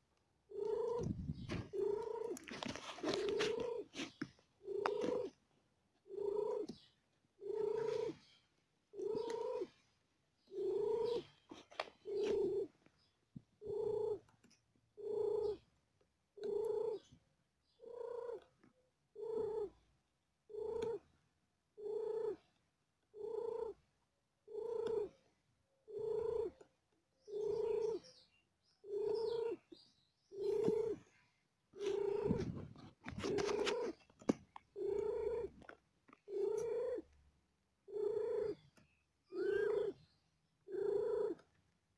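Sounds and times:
cat purring: 0.5s - 5.4s, 6.0s - 6.8s, 7.4s - 8.2s, 8.9s - 12.8s, 13.6s - 14.3s, 15.0s - 15.6s, 16.4s - 17.1s, 17.8s - 18.5s, 19.2s - 19.8s, 20.5s - 21.0s, 21.8s - 22.5s, 23.1s - 23.9s, 24.5s - 25.2s, 25.9s - 26.7s, 27.3s - 28.0s, 28.8s - 37.2s, 37.9s - 40.0s, 40.6s - 41.6s.

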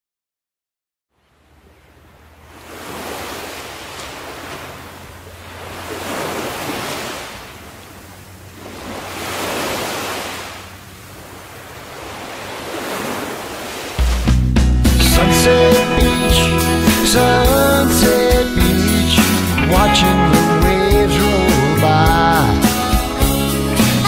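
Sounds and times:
ocean waves washing in: 1.1s - 24.0s
music: 14.0s - 24.0s.

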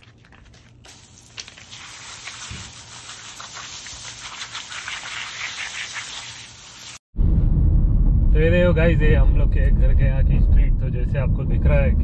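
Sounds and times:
hose spray hissing on feet: 0.8s - 7.0s.

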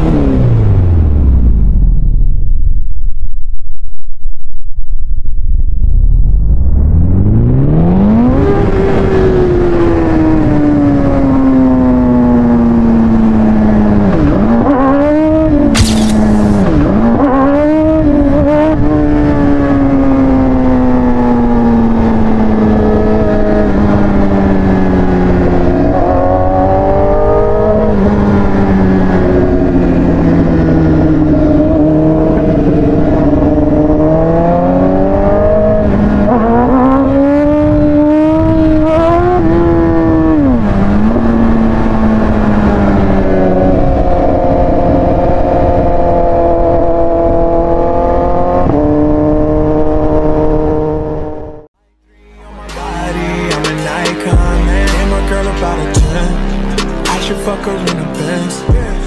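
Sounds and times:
motorcycle engine revving: 0.0s - 2.0s, 6.8s - 52.0s
wind rushing: 0.2s - 12.3s, 13.0s - 47.6s.

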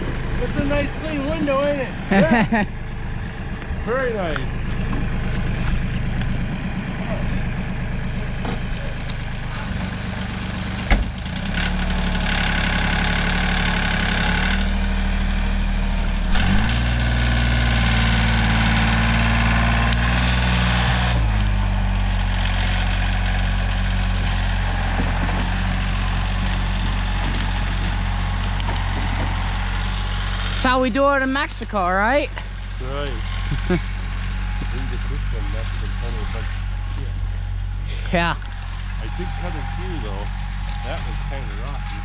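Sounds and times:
tractor diesel engine under load: 0.0s - 42.0s
sharp crack: 16.3s - 30.6s
wood scraping through brush: 19.2s - 30.8s, 32.2s - 42.0s.

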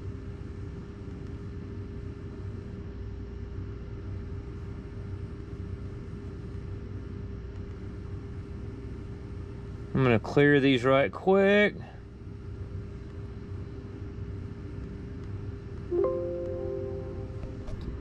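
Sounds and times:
faint constant tone: 0.0s - 18.0s
machine humming and rumbling: 12.0s - 18.0s.

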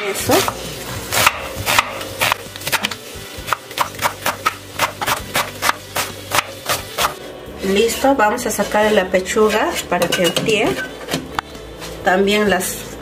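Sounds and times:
knife chopping on wooden board: 0.4s - 2.9s.

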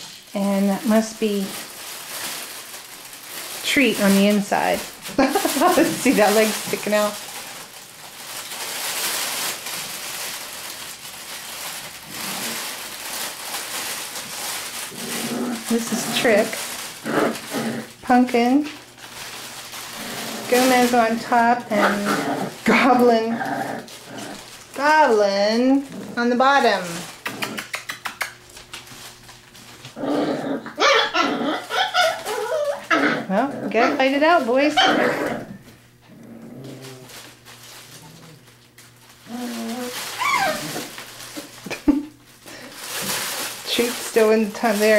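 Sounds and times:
nylon tunnel crackly rustling: 0.0s - 27.2s, 36.5s - 44.9s
puppies growling and yapping: 1.6s - 11.0s, 11.6s - 18.2s, 19.0s - 28.6s, 29.6s - 41.9s.

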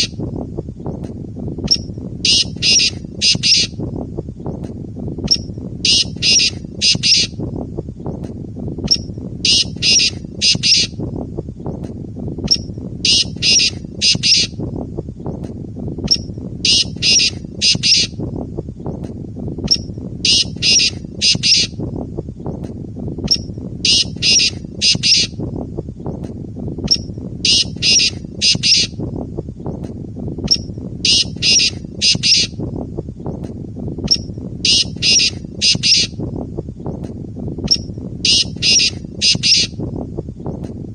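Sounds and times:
francolin calling: 1.7s - 3.8s, 5.3s - 7.4s, 8.9s - 11.0s, 12.5s - 14.6s, 16.1s - 18.2s, 19.7s - 21.8s, 23.3s - 25.4s, 26.9s - 29.0s, 30.5s - 32.6s, 34.1s - 36.2s, 37.7s - 39.8s.

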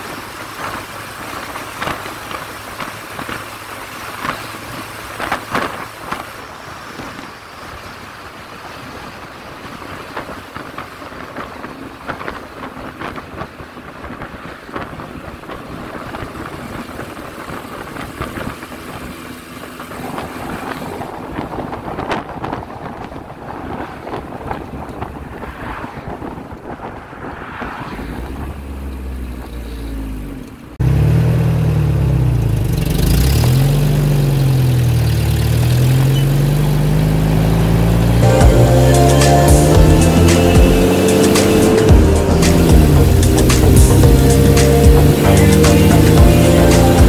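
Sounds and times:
road and engine noise: 0.0s - 47.0s
wind buffeting microphone: 0.5s - 29.7s.

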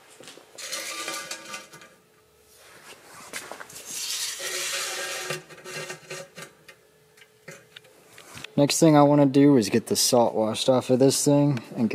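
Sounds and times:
tape measure scraping and rattling: 0.6s - 2.0s, 3.3s - 6.7s.

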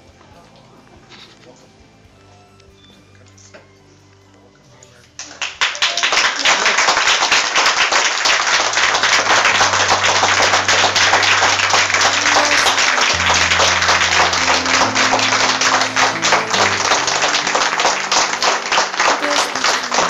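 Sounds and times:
audience applauding: 5.2s - 20.0s
low sustained music notes: 8.2s - 20.0s.

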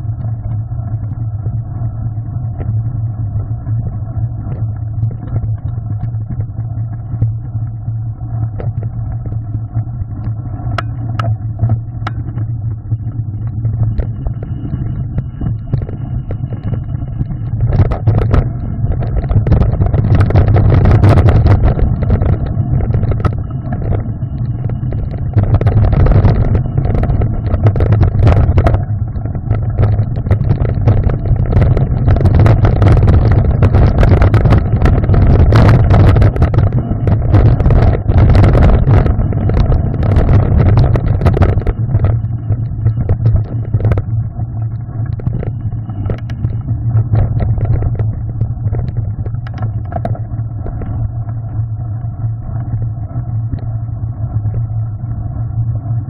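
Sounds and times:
wind buffeting microphone: 8.4s - 56.0s
bike knocking and rattling on stones: 10.1s - 12.6s, 13.5s - 51.5s.

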